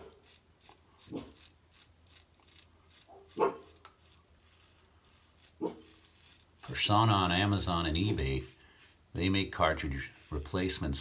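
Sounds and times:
razor scraping stubble: 0.0 - 11.0
dog barking: 3.1 - 3.7, 5.6 - 5.9.

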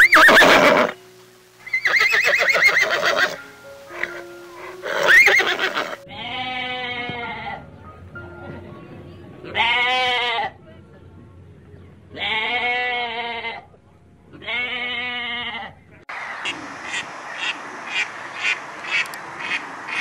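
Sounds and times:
horses neighing: 0.0 - 1.0, 1.6 - 7.6
quiet background music: 0.0 - 16.1
sheep bleating: 4.9 - 7.6, 9.6 - 10.6, 12.1 - 13.7, 14.3 - 15.8.

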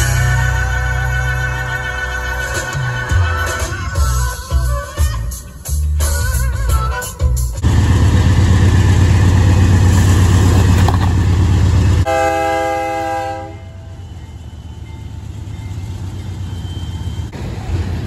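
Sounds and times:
locomotive rumbling past: 7.6 - 18.0
train horn blast: 12.0 - 14.0.

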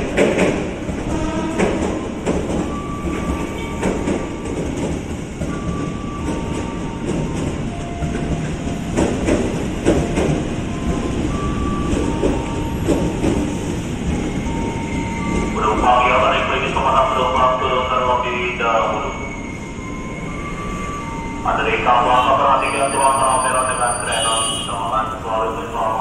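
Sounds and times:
wheels clacking on rail joints: 0.0 - 15.6
train wheels rumbling on rail: 0.0 - 26.0.

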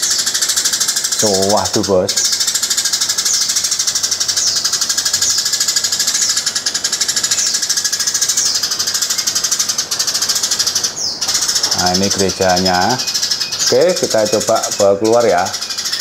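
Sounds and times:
sparrow rattling chatter: 0.0 - 16.0.

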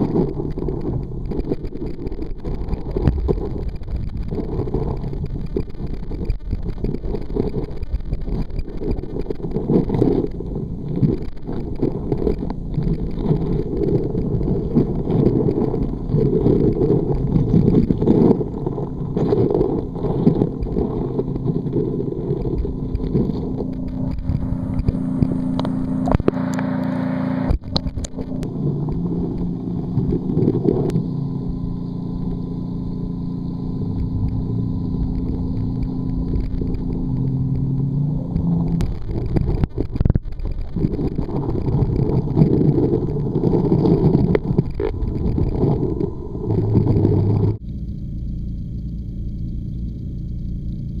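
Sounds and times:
muffled underwater water rumble: 0.0 - 51.0
steady low hum: 0.0 - 51.0
sharp clicks: 33.8 - 51.0.

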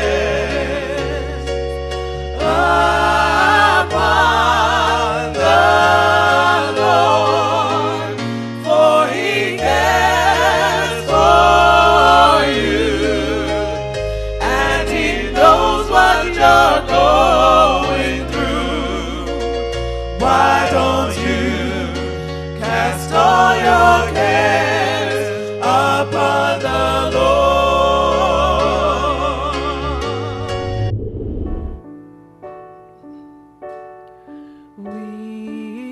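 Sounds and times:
slow low chords: 30.2 - 31.9.

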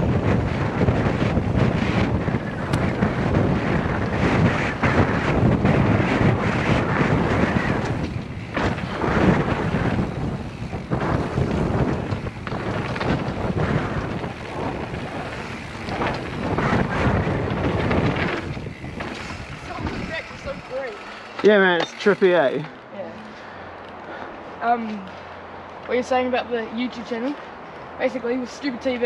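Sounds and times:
bike knocks and rattles: 0.0 - 22.7
wind rushing over microphone: 0.0 - 23.0.

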